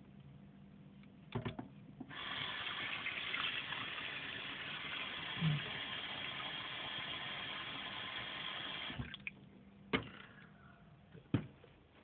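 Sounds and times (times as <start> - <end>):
water running into kettle: 2.1 - 9.3.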